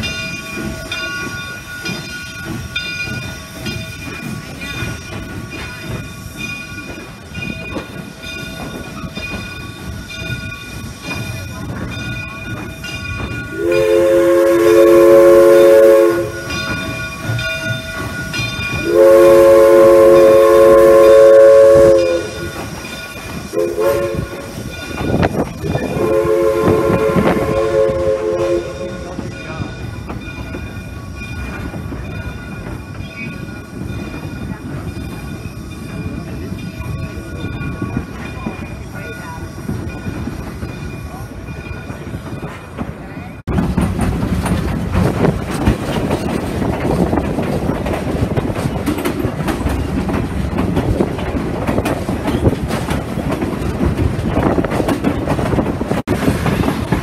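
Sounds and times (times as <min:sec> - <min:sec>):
train rumbling: 0:00.0 - 0:57.0
steam locomotive chime whistle: 0:12.2 - 0:31.4.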